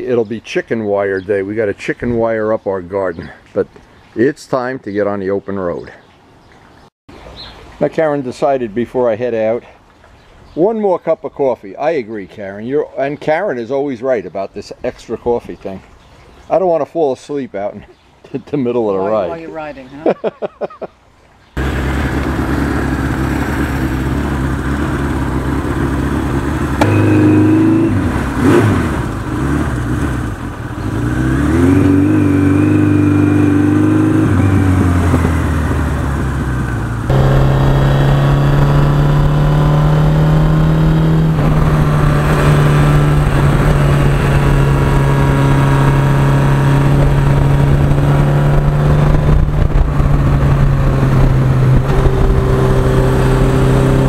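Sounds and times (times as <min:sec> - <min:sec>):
motorcycle engine running: 0:21.6 - 0:54.0.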